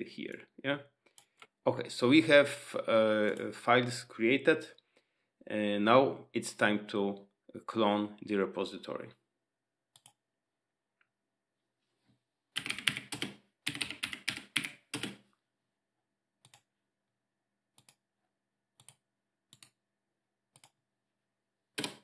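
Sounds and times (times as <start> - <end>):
typing on computer keyboard: 12.6 - 15.2, 21.8 - 22.0.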